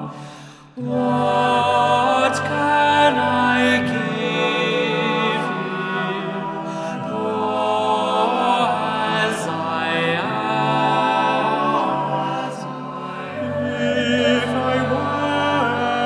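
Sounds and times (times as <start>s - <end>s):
male a cappella choir singing: 0.0s - 16.0s.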